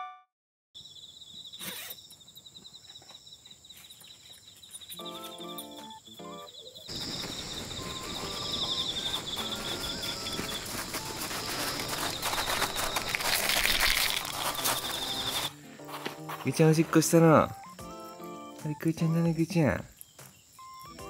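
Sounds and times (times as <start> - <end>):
insects chirping: 0.8 - 21.0
soft music: 4.9 - 6.6, 7.8 - 21.0
footsteps crunching on gravel: 6.9 - 17.6.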